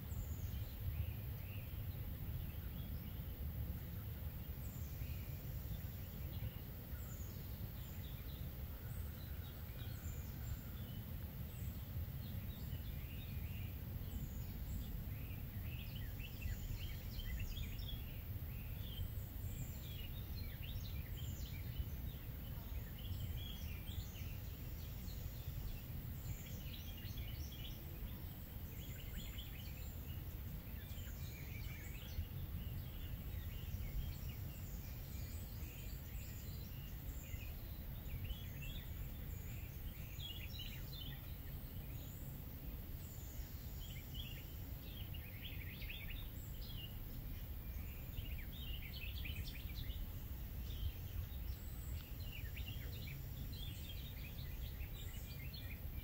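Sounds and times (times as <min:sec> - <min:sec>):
birds singing: 0:00.0 - 0:56.0.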